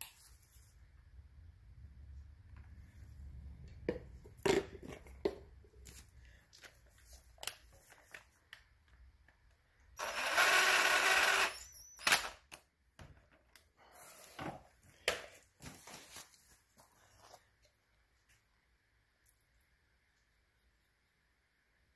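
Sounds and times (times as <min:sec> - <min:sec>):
cordless drill running: 0:10.0 - 0:12.3.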